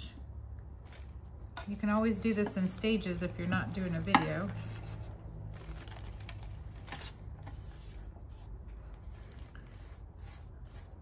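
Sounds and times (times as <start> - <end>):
paper rustling: 3.4 - 10.0.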